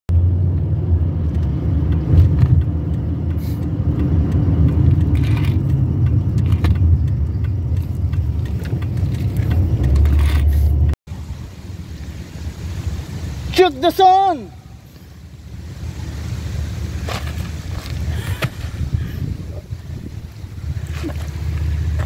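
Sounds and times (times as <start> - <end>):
car road and engine rumble: 0.1 - 22.0
small rattles and clicks: 1.3 - 10.9.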